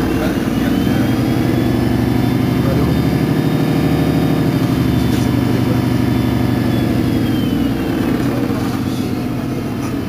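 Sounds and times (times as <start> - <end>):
bus diesel engine idling: 0.0 - 10.0.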